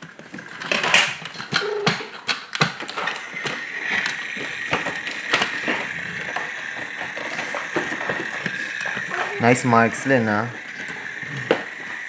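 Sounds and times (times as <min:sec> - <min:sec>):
plastic toy track pieces clicking: 0:00.0 - 0:12.0
high-pitched whine: 0:02.9 - 0:12.0.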